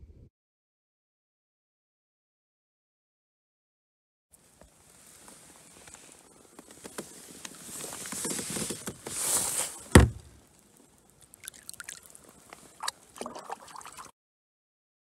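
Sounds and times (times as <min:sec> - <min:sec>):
handling and water noise: 0:04.4 - 0:14.1
water dripping and trickling: 0:10.4 - 0:14.1
fish splashing into water: 0:11.2 - 0:14.1.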